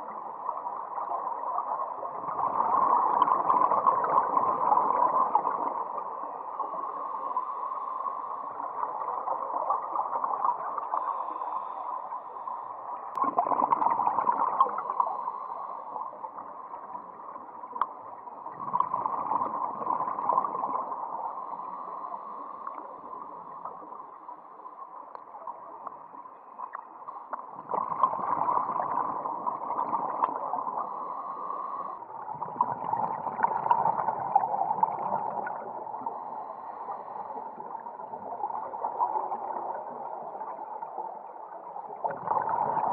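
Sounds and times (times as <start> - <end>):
muffled underwater hiss: 0.0 - 42.9
diver's bubbles gurgling: 1.0 - 6.0, 13.2 - 15.2, 17.0 - 21.1, 27.5 - 31.0, 32.2 - 36.2, 41.8 - 42.9.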